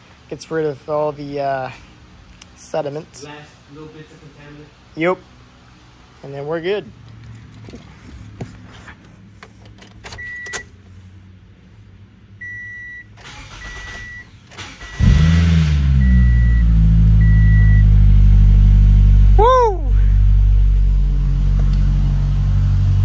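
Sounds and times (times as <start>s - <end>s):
dashboard warning chime beeping: 10.2s - 10.7s, 12.4s - 15.1s, 16.0s - 17.9s
car engine starting and idling: 12.3s - 23.0s.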